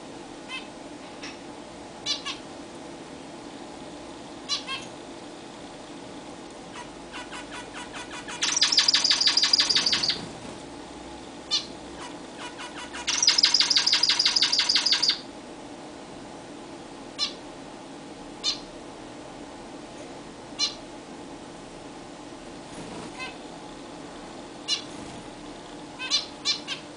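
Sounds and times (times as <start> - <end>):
zebra finches calling: 2.0 - 2.4, 4.5 - 4.9, 6.7 - 10.2, 11.5 - 15.2, 18.4 - 18.7, 24.7 - 24.9, 26.0 - 26.8.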